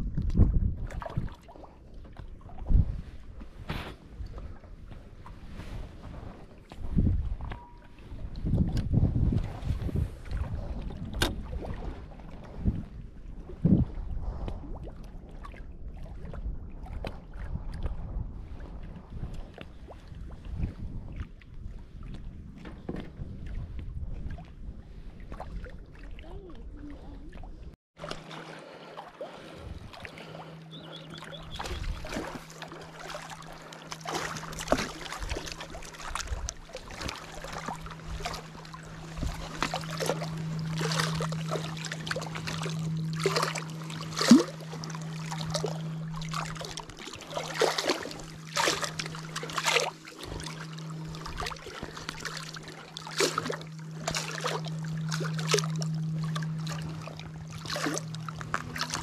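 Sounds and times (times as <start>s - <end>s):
water splashing and slapping: 0.0s - 59.0s
boat motor humming: 1.6s - 14.2s, 26.0s - 59.0s.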